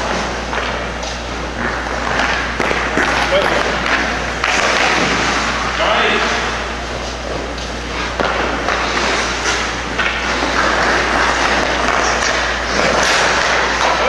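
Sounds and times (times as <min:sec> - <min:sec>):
skate blades scraping ice: 0:00.0 - 0:14.0
sticks and puck clacking: 0:00.0 - 0:14.0.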